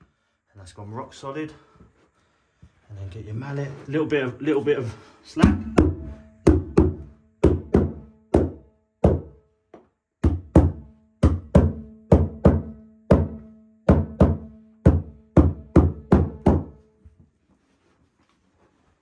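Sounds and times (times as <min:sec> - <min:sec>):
rubber mallet knocking: 0:05.4 - 0:16.8.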